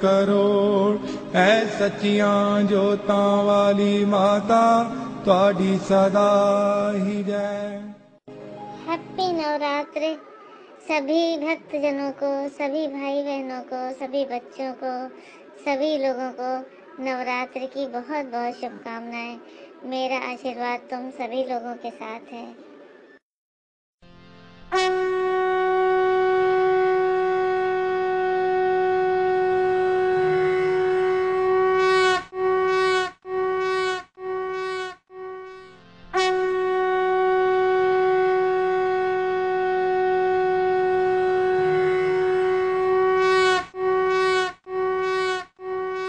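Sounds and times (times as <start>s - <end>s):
conch shell blowing: 24.6s - 46.0s.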